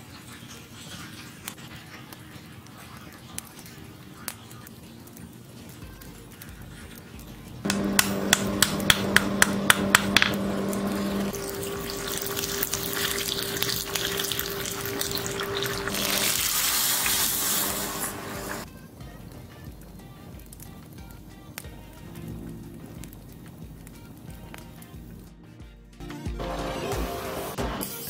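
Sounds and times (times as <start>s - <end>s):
hot blade crackling in water: 0.0s - 18.7s
sizzling bubbling hiss: 0.0s - 25.6s
low hum: 7.6s - 16.5s, 22.1s - 25.3s.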